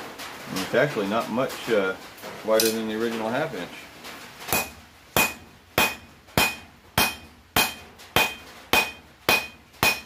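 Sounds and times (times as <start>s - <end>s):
hammer striking steel on anvil: 4.5s - 10.0s.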